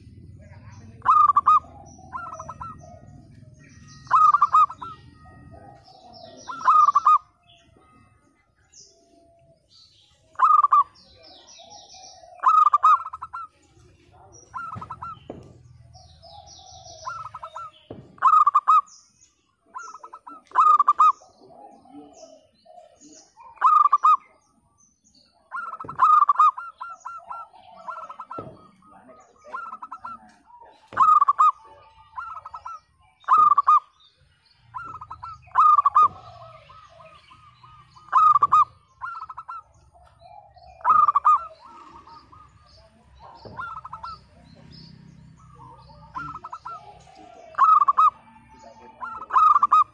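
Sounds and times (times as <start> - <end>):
dove cooing: 0.0 - 18.9, 19.6 - 24.4, 25.4 - 34.0, 34.6 - 49.9
faint bird chirps: 0.0 - 49.9.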